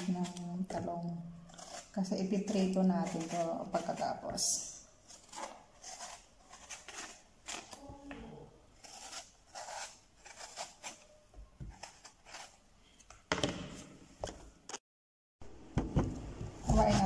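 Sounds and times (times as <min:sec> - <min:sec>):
knife scraping eggplant skin: 0:00.0 - 0:07.8, 0:08.8 - 0:13.1, 0:16.6 - 0:17.0.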